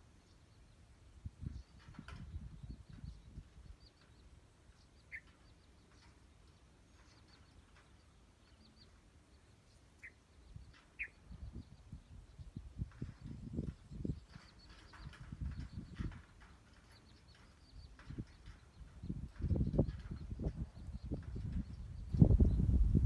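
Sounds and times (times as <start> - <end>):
bird chirps: 1.4 - 22.8.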